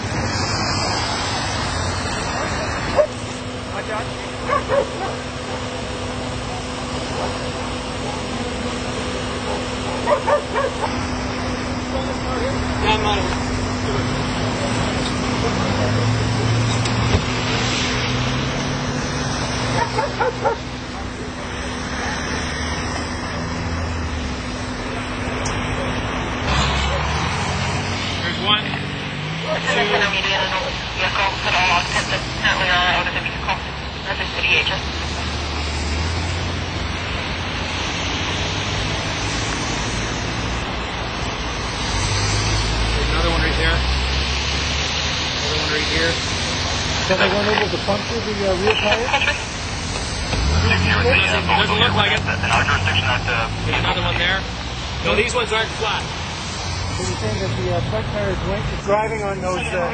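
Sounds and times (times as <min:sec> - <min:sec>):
low engine hum: 0:00.0 - 0:59.9
dog barking: 0:02.9 - 0:03.2, 0:04.4 - 0:05.6, 0:09.4 - 0:11.0, 0:19.8 - 0:20.6.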